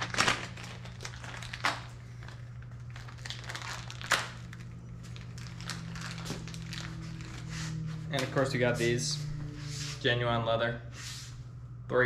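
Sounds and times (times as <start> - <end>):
rustling and crinkling: 0.0 - 8.6
steady low hum: 0.0 - 12.0.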